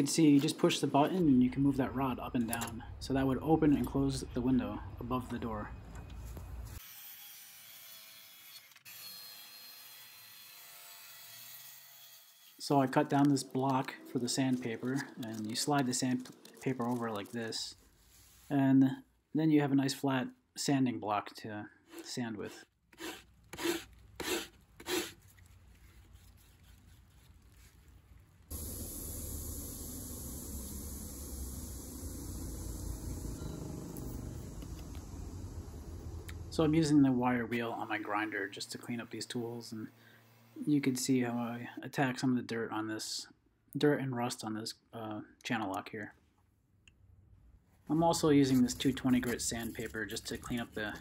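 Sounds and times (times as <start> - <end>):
steady hiss with low hum: 0.0 - 6.8, 23.4 - 42.6, 47.4 - 51.0
circular saw cutting wood: 23.0 - 25.2, 28.5 - 40.6
sanding block rasping on wood: 23.0 - 25.2.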